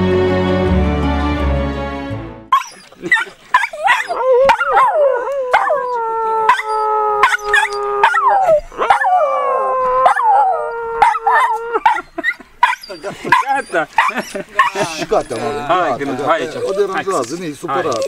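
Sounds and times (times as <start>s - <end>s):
dog howling: 3.7s - 12.0s.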